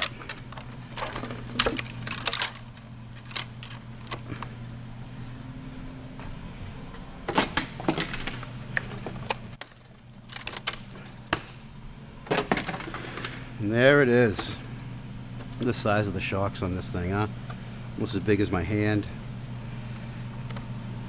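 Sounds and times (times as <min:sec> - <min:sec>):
plastic packaging rustling: 0:00.0 - 0:04.4, 0:09.8 - 0:11.2
steady low hum: 0:00.0 - 0:21.0.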